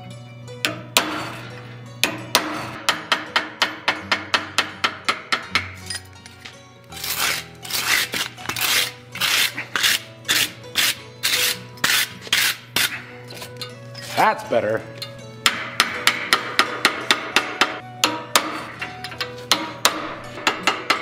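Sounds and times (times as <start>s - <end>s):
hammer tapping on hot steel: 2.0s - 5.8s, 15.4s - 18.6s, 19.5s - 21.0s
tool rasping across steel: 6.9s - 14.2s.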